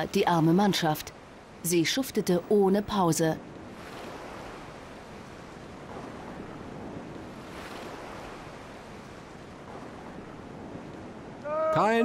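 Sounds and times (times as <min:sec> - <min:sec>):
wind: 0:00.0 - 0:12.0
water washing along hull: 0:03.4 - 0:12.0.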